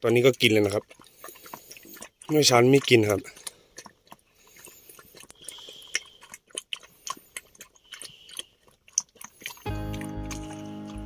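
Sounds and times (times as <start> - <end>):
animal chewing and crunching food: 0.0 - 11.0
background music: 9.7 - 11.0.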